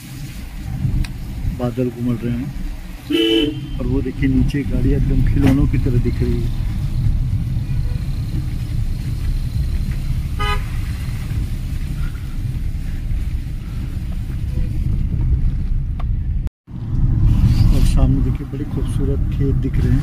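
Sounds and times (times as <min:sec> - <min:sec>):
car rumbling: 0:00.0 - 0:20.0
car horn toot: 0:03.1 - 0:04.0, 0:10.4 - 0:11.1.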